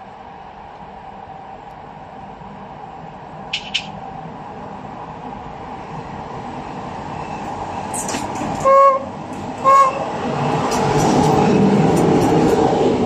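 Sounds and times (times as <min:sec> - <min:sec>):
train motors and wheels passing: 0:00.0 - 0:13.0
locomotive horn toots: 0:08.6 - 0:10.1.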